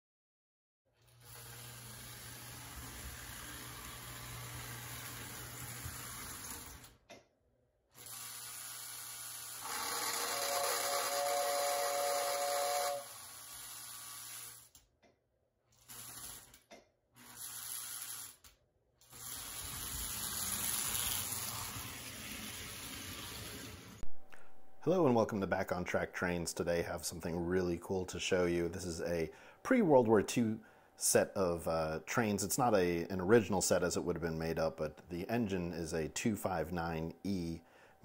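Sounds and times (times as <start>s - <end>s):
toy train motor hum: 1.0s - 7.0s, 7.9s - 14.8s, 15.7s - 16.6s, 17.2s - 23.9s
rattly toy train whistle: 9.6s - 14.6s.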